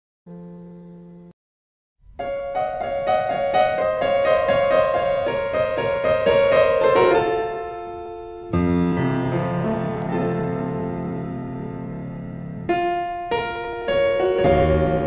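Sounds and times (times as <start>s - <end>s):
piano music: 2.0s - 15.0s.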